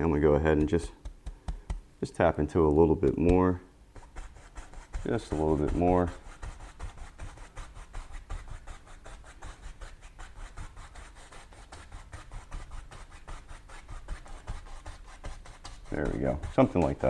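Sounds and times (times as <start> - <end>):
paintbrush scratching on canvas: 3.0 - 17.0.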